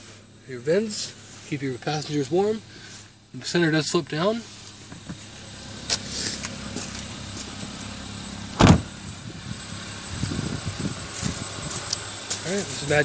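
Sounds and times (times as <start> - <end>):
car engine idling: 0.0 - 13.0
car door shutting: 8.6 - 9.0.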